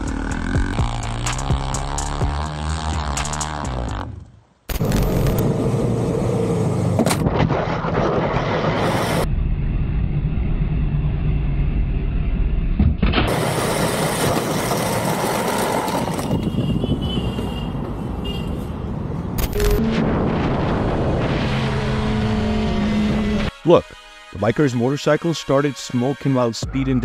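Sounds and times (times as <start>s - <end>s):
vehicle engine rumbling: 0.0s - 23.5s.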